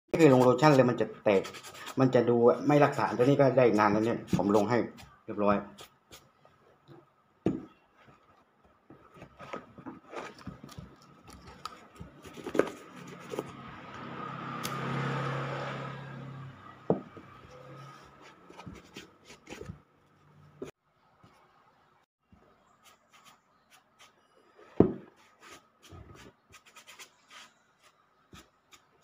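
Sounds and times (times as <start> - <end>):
boot knocking on wooden bench: 7.5 - 7.8, 16.9 - 17.2.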